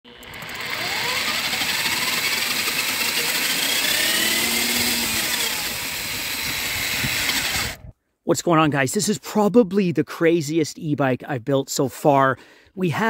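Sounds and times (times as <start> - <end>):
electric motor whining: 0.1 - 7.9.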